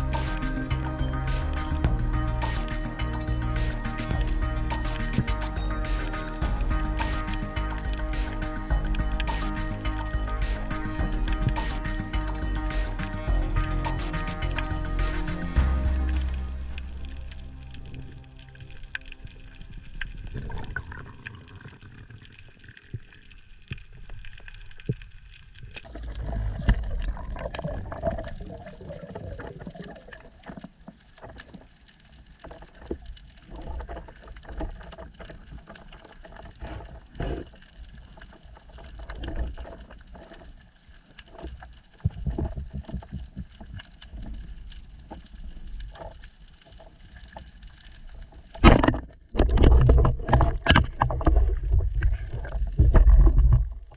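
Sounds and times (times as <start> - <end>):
water sloshing and gurgling: 0.0 - 53.9.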